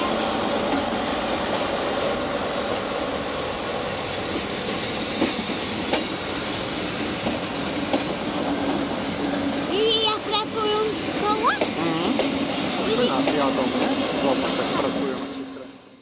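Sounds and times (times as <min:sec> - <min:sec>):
train wheels rumbling on rails: 0:00.0 - 0:16.0
wheels clacking over rail joints: 0:03.9 - 0:15.8.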